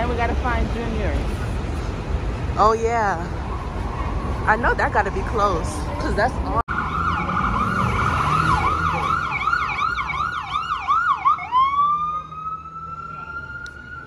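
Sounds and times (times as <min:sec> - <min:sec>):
city traffic rumble: 0:00.0 - 0:14.0
ambulance siren: 0:06.7 - 0:14.0.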